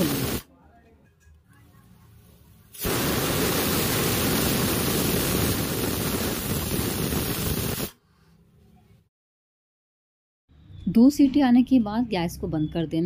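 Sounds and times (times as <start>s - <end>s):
pressure cooker steam hiss: 0.0s - 0.4s, 2.8s - 8.0s.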